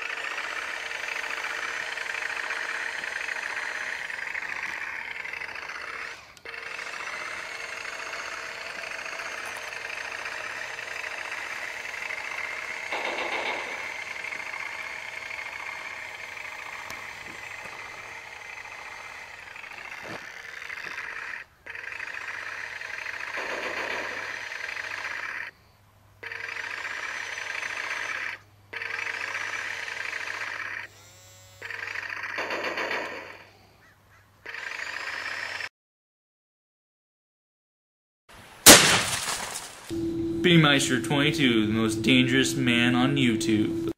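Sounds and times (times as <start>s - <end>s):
toy tank motor whirring: 0.0s - 25.6s, 26.2s - 33.6s, 34.4s - 35.7s.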